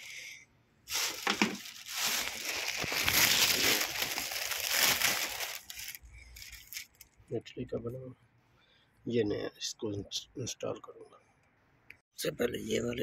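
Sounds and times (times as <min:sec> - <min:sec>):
plastic bag crinkling: 0:00.9 - 0:07.0.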